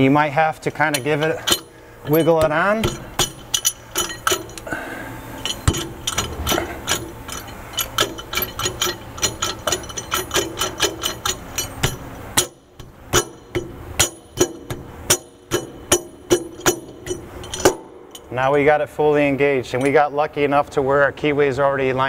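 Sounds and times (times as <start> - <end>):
metal rotor clinking on shaft: 0.8 - 4.8, 5.4 - 18.4.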